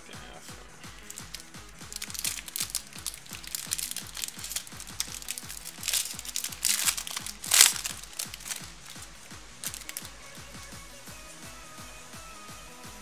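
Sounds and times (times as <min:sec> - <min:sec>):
electronic background music: 0:00.0 - 0:13.0
foil wrapper crinkling: 0:00.9 - 0:10.7.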